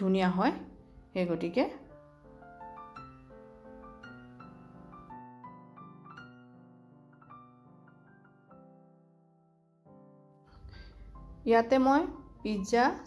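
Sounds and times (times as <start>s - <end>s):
soft piano music: 0.0s - 13.0s.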